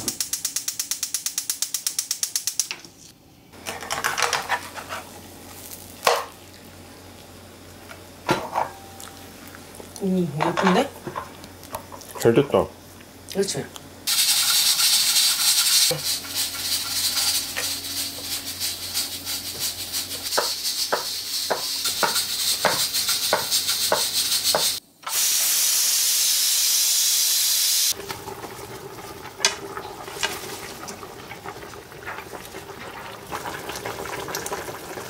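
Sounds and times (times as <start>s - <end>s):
stovetop cooking hiss: 0.0s - 35.0s.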